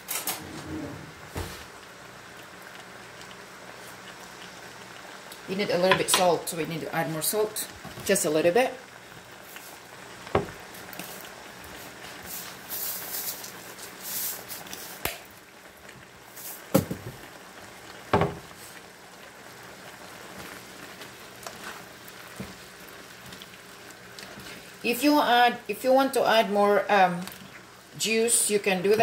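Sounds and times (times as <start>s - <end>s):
soup bubbling in a pan: 1.1s - 25.7s, 26.8s - 28.0s.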